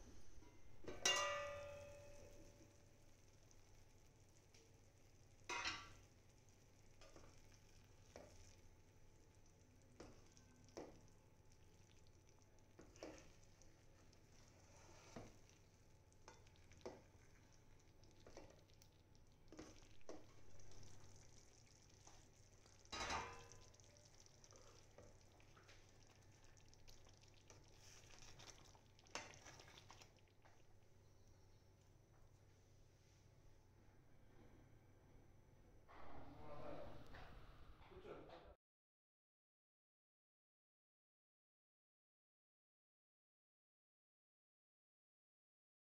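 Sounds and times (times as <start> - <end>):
faint sizzle of gravy: 0.0 - 33.6
spoon scraping and clinking pan: 0.8 - 2.5.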